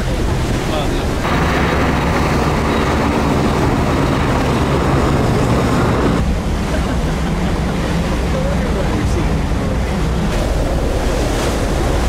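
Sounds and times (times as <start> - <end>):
helicopter flying past: 1.2 - 6.2.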